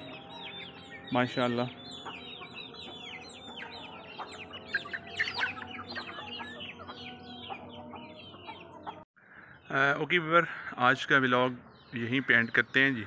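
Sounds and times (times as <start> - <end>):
hens clucking: 0.0 - 9.0
chicks peeping: 0.0 - 9.7.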